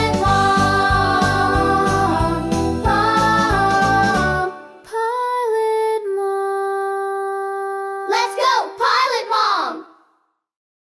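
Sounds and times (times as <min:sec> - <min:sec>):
backing music: 0:00.0 - 0:04.8.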